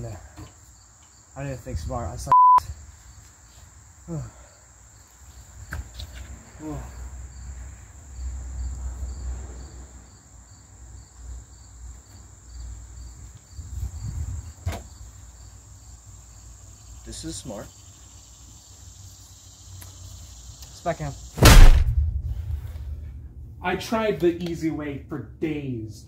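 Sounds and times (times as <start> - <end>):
insects chirring: 0.0 - 23.3
wind rumble on microphone: 13.5 - 14.7.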